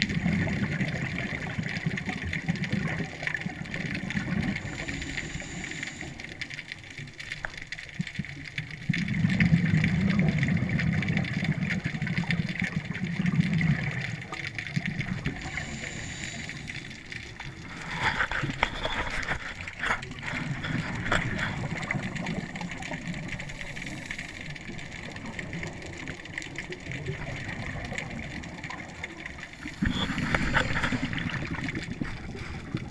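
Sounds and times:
bubbles rumbling underwater: 0:00.0 - 0:32.9
clicks and crackles: 0:00.0 - 0:32.9
breathing through regulator: 0:04.6 - 0:06.5, 0:15.4 - 0:22.4, 0:23.4 - 0:24.7, 0:29.6 - 0:32.9.

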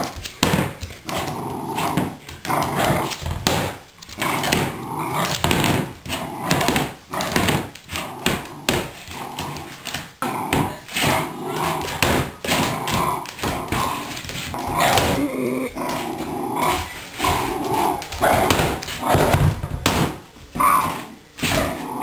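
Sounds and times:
plastic basket scraping wooden floor: 0:00.0 - 0:20.1
dog growling and barking: 0:04.2 - 0:19.4.

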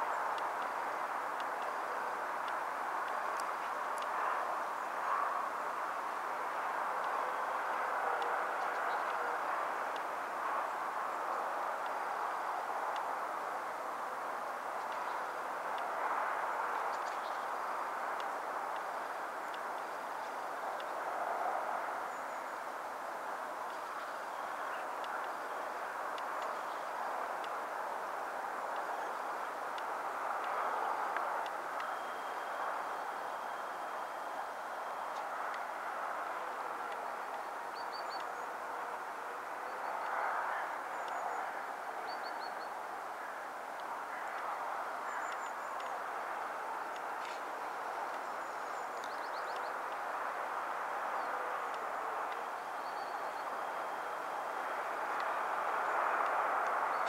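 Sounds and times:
faint high ticks: 0:02.4 - 0:04.2, 0:18.2 - 0:21.0, 0:45.1 - 0:46.0.

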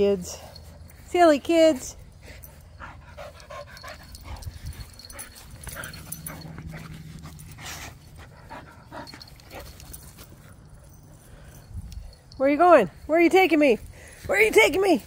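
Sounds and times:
dog panting: 0:02.0 - 0:12.3.

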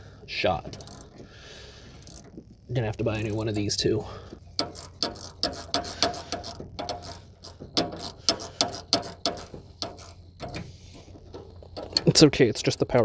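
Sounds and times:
steady low hum: 0:00.0 - 0:13.0
ratchet wrench clicking: 0:00.7 - 0:01.3, 0:01.9 - 0:13.0.

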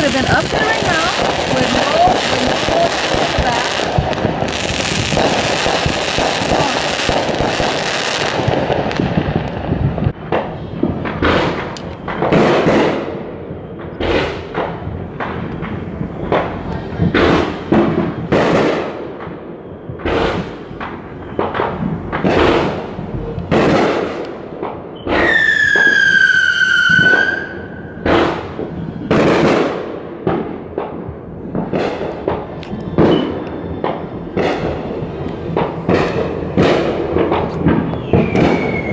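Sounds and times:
fireworks bangs: 0:00.0 - 0:38.9
fireworks crackling: 0:00.0 - 0:38.9
firework whistling tone: 0:24.9 - 0:29.6, 0:32.4 - 0:38.9.

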